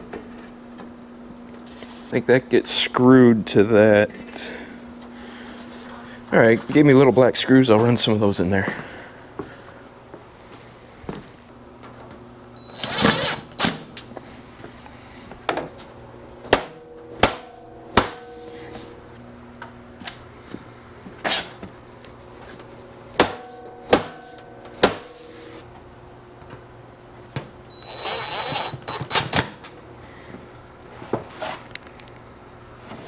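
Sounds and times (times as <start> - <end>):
cordless drill whining: 27.7 - 29.2.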